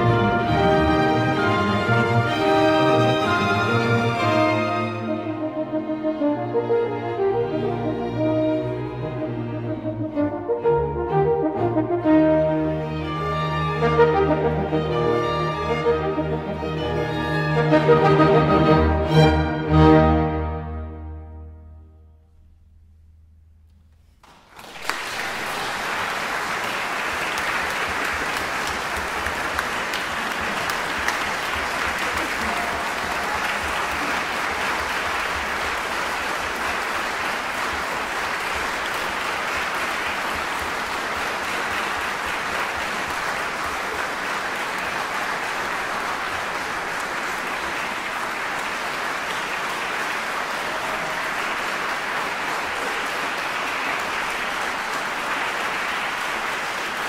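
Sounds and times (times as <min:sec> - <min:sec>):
audience applauding: 0:24.2 - 0:57.0.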